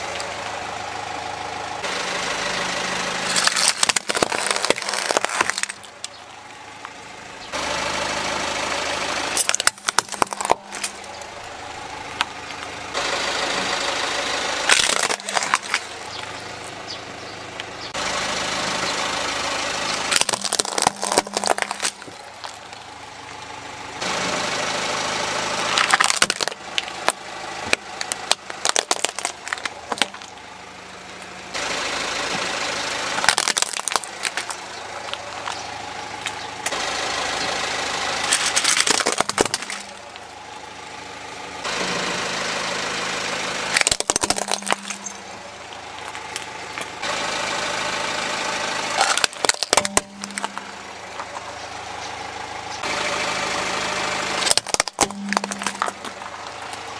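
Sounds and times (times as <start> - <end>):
car engine idling: 0.0 - 56.9
plastic cracking and crunching: 3.3 - 6.2, 9.4 - 11.3, 14.7 - 16.0, 20.1 - 22.8, 25.7 - 30.4, 33.2 - 35.6, 38.3 - 40.2, 43.7 - 45.2, 49.0 - 50.7, 54.4 - 56.8.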